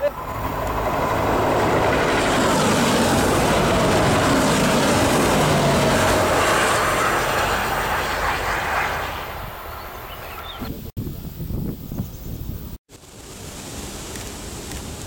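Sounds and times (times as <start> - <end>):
train engines and wheels on rails: 0.0 - 10.7.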